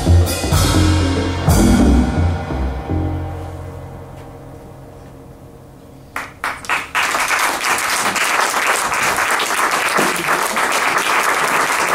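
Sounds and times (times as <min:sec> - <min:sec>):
low ringing music: 0:00.2 - 0:06.4
audience applauding: 0:06.2 - 0:11.9.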